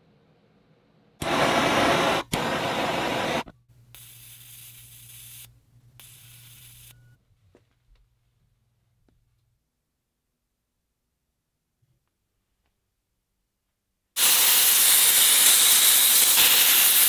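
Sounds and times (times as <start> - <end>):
heat gun hissing: 1.2 - 6.9, 14.2 - 17.0.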